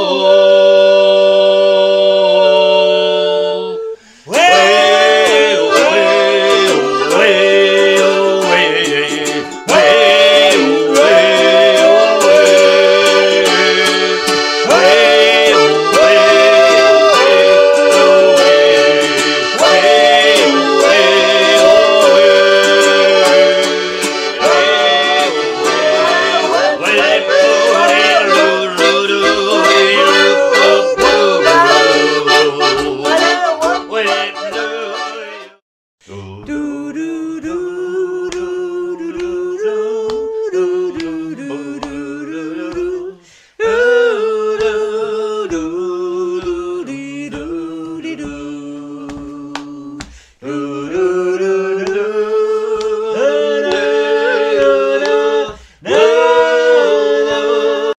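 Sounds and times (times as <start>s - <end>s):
accordion: 0.0s - 35.6s, 40.6s - 43.1s, 44.6s - 57.9s
group singing: 0.0s - 57.9s
ukulele: 4.3s - 35.6s, 36.4s - 57.6s
soft tapping beat: 36.4s - 44.8s, 45.4s - 50.2s.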